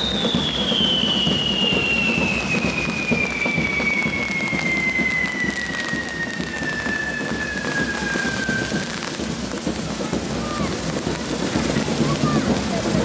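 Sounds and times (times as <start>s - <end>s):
whistling tone falling in pitch: 0.0s - 9.1s
fireworks hissing and crackling: 0.0s - 13.0s.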